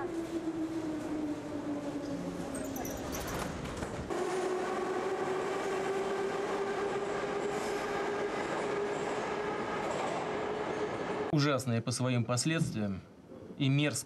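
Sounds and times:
train motor whine: 0.0s - 11.2s.

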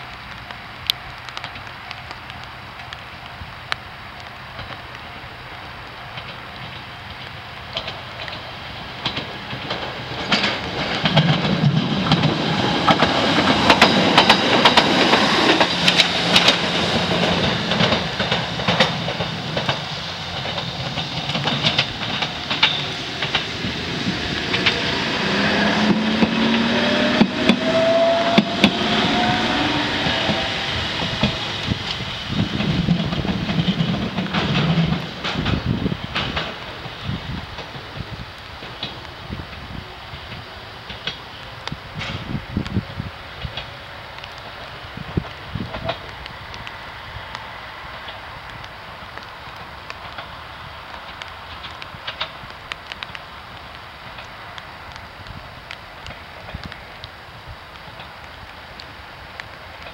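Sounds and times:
tram wheels clicking over rail joints: 0.0s - 59.9s
train motor whine: 21.2s - 32.9s.

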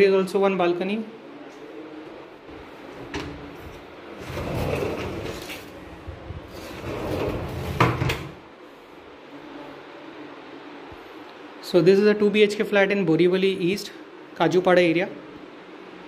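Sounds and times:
sliding door rumbling along track: 4.2s - 8.4s.

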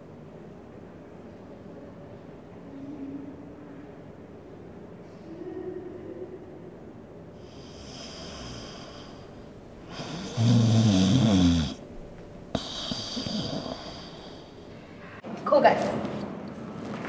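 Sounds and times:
person snoring: 7.4s - 11.8s, 12.5s - 14.7s
soft breathing: 7.4s - 11.9s, 12.5s - 15.2s.

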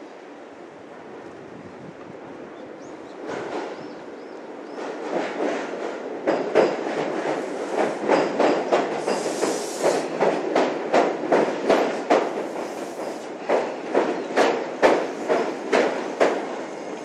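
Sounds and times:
train wheels clacking on rails: 2.8s - 17.0s.

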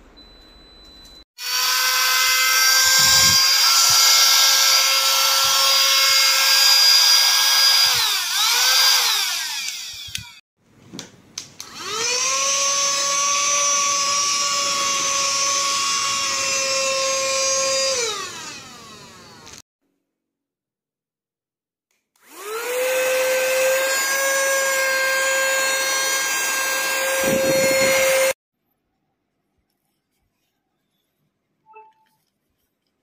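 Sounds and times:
vacuum cleaner motor whining: 1.4s - 10.4s, 11.6s - 19.6s, 22.2s - 28.4s.

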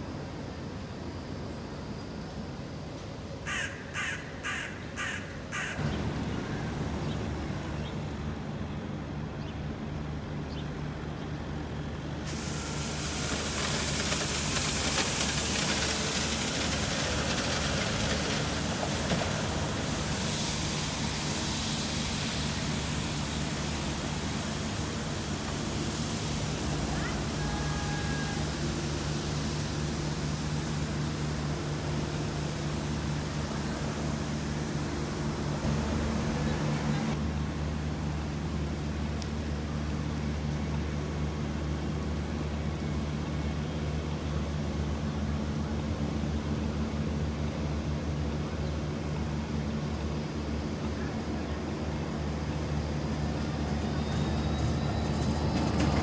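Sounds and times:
street noise: 0.0s - 56.0s
crow cawing: 3.5s - 5.8s
low engine drone: 5.8s - 55.0s.

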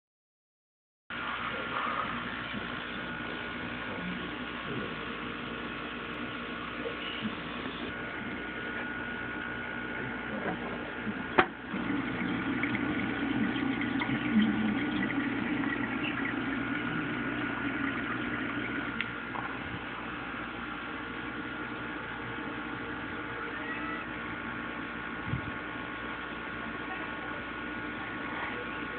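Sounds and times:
aquarium filter water trickling: 11.6s - 20.0s.

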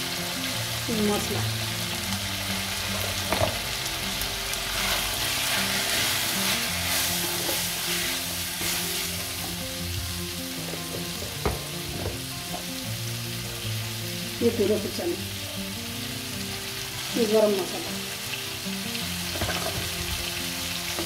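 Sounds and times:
meat sizzling in hot oil: 0.0s - 21.0s
stirring in a pan: 4.8s - 9.6s.

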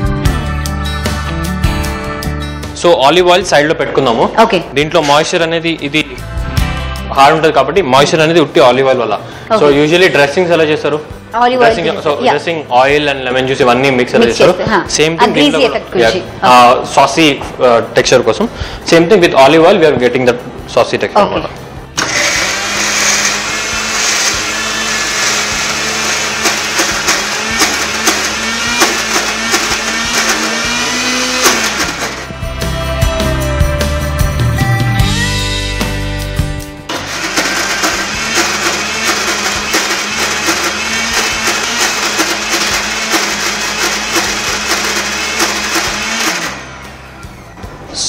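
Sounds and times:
background music with beat: 0.0s - 2.9s, 5.9s - 7.2s, 25.2s - 48.0s
mixer grinder whirring: 22.0s - 32.4s, 36.9s - 47.2s.

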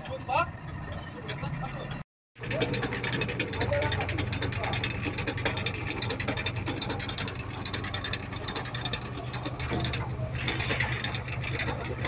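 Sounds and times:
engine idling: 0.0s - 12.0s
mechanical clicking and crackling: 2.4s - 12.0s.

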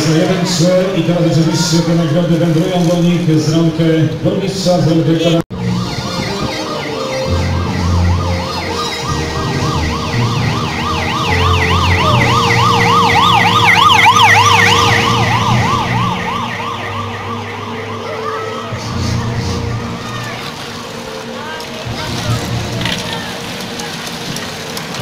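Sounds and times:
motorcycle siren yelping: 5.5s - 21.3s
motorcycle engine humming: 5.6s - 25.0s.

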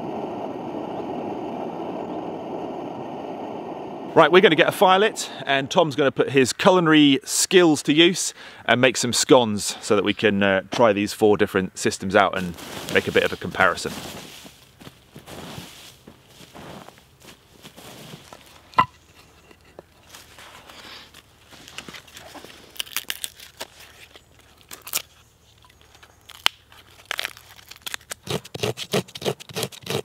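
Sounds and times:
bark being torn and peeled: 21.6s - 30.0s
knife blade scraping bark: 28.2s - 30.0s.

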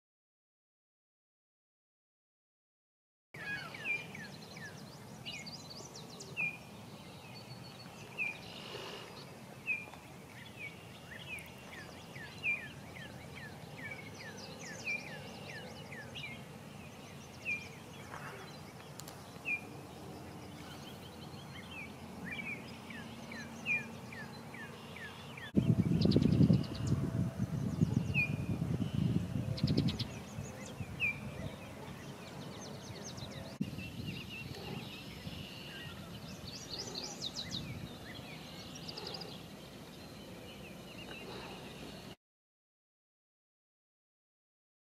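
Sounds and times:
small birds chirping: 3.4s - 42.2s
outdoor hiss: 7.9s - 11.6s.

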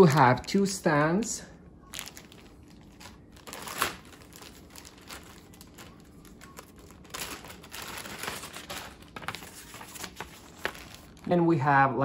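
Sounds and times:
plastic bags crinkling: 1.9s - 11.3s.

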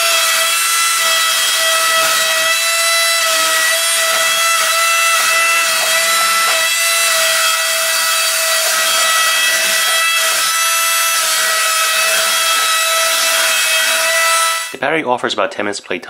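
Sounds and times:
suction fan whining: 0.0s - 14.8s.

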